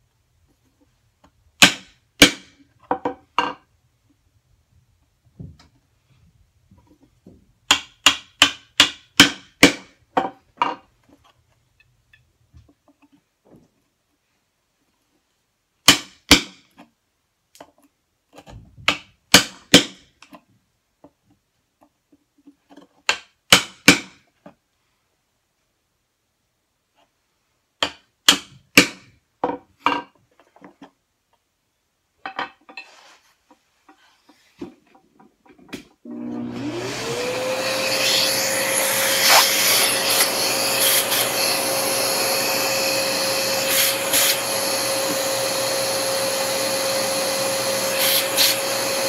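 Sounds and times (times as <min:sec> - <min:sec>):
hammer striking chisel in wood: 0:01.6 - 0:02.5, 0:07.7 - 0:09.9, 0:15.8 - 0:16.5.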